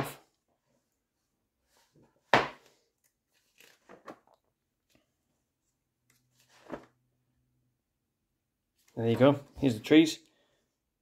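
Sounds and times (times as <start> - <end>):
book pages turning: 2.6 - 5.1, 6.1 - 7.0.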